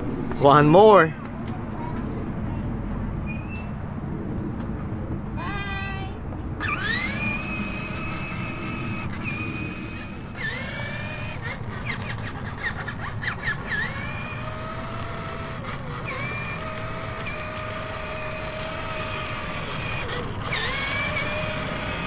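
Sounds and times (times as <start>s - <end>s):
toy electric motor whine: 6.6s - 22.0s.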